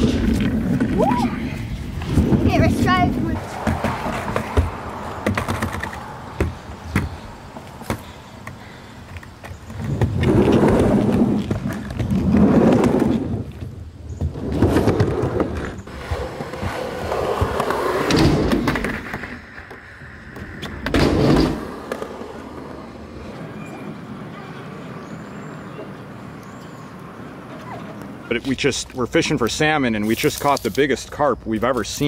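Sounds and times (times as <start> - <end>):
skateboard wheels rolling: 0.0 - 29.8
skateboard clicks and knocks: 3.4 - 28.3.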